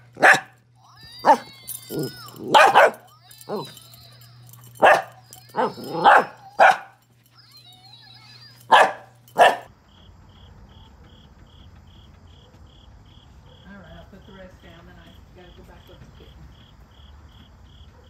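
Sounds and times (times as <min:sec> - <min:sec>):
small dog barking: 0:00.0 - 0:00.6, 0:01.2 - 0:07.0, 0:08.6 - 0:09.7
insects chirping: 0:01.2 - 0:17.9.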